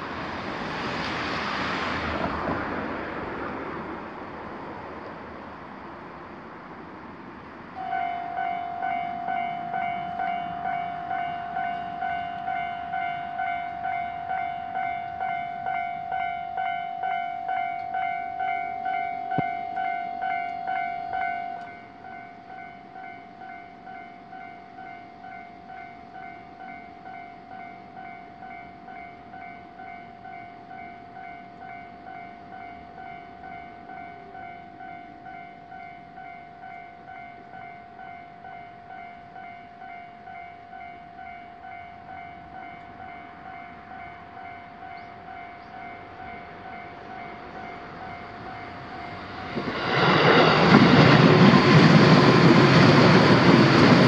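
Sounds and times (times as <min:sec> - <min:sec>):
train passing with rushing rumble: 0:00.0 - 0:54.0
level crossing warning bell: 0:07.7 - 0:49.6.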